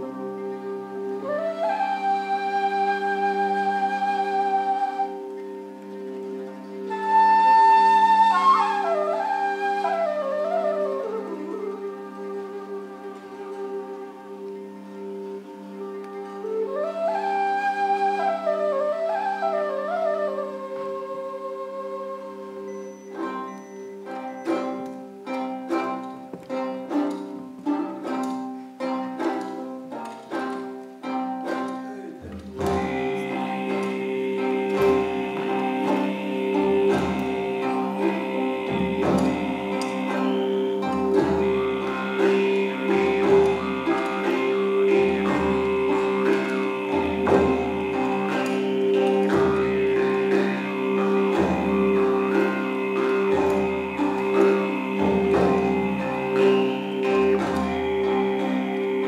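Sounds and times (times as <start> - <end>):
plucked string notes: 0.0 - 59.0
high held tone: 32.2 - 59.0
steady drone: 32.2 - 59.0.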